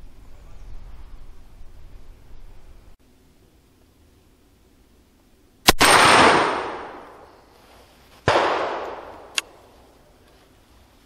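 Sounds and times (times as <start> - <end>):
rifle shot with ringing tail: 5.7 - 7.2, 8.3 - 9.3.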